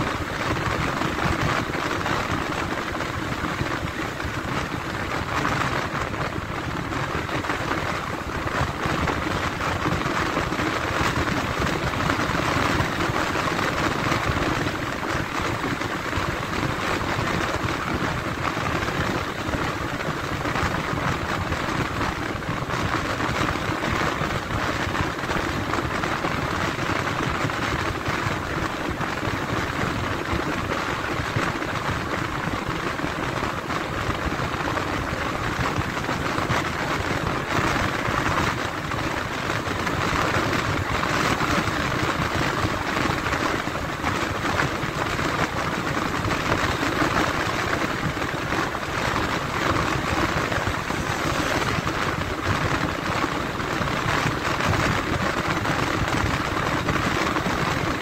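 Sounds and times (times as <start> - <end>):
vehicle road noise: 28.4 - 58.0.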